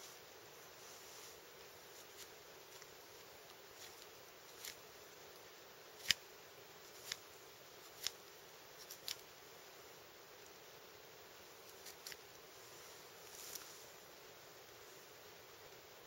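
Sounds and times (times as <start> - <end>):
faint steady hiss: 0.0 - 16.0
kindling snapping: 8.8 - 9.3.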